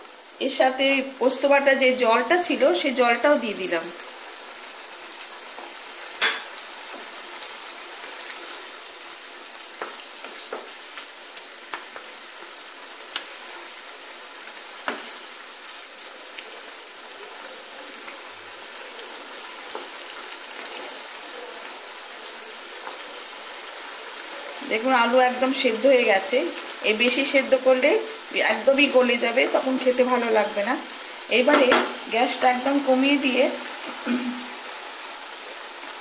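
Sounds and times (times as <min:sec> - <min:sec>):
curry sizzling in a pan: 0:00.0 - 0:36.0
wooden spatula knocking a pan: 0:31.5 - 0:32.0.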